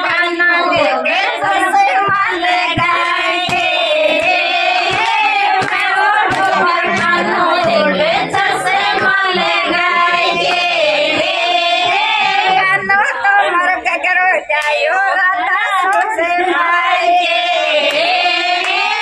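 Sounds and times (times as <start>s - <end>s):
hand claps: 0.0s - 13.0s, 14.6s - 14.8s, 15.9s - 16.2s, 17.8s - 19.0s
women singing folk song: 0.0s - 19.0s.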